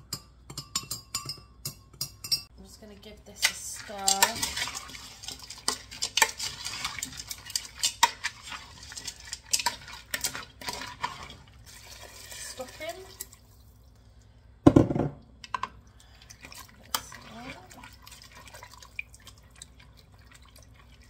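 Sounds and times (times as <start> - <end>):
plastic spoon scraping a pot: 3.4 - 12.7.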